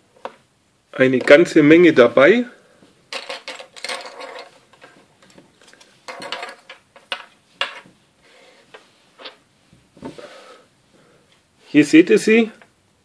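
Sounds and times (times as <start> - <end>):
plastic parts clicking on table: 3.1 - 7.9.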